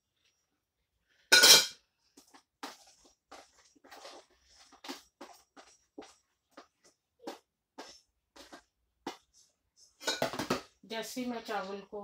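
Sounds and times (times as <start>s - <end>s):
spoon clattering on plate: 1.3s - 1.8s
utensils and dishes clinking: 10.0s - 10.6s.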